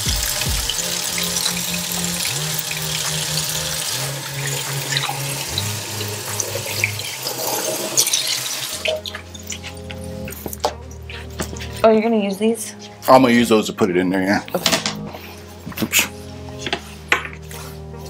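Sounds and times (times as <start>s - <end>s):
background music with bass: 0.0s - 7.2s, 8.8s - 18.0s
faucet running into sink: 0.0s - 10.0s.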